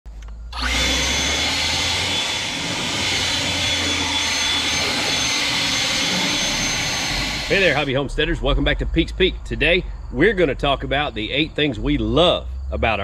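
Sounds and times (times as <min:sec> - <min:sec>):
leaf blower running: 0:00.4 - 0:08.0.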